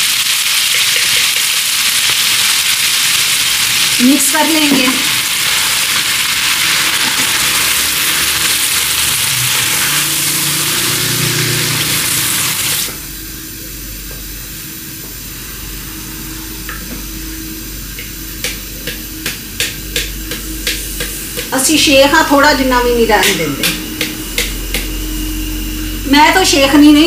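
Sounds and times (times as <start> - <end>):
food sizzling in a pan: 0.0 - 27.0
steady hum: 2.4 - 27.0.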